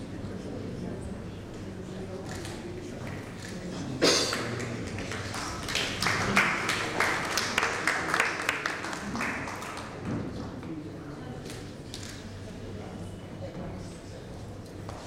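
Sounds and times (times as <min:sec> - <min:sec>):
low chatter: 0:00.0 - 0:15.0
hand clapping: 0:04.3 - 0:10.0.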